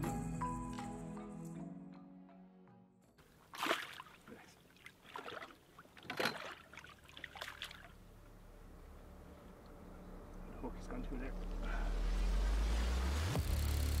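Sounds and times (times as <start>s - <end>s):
fish splashing in water: 3.4s - 8.0s.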